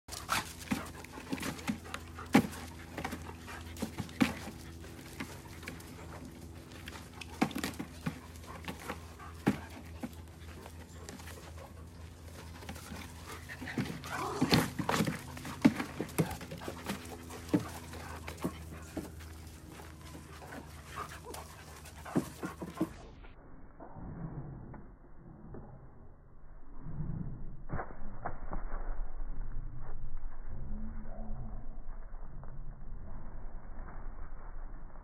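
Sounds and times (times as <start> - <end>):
dogs panting: 0.1 - 23.2.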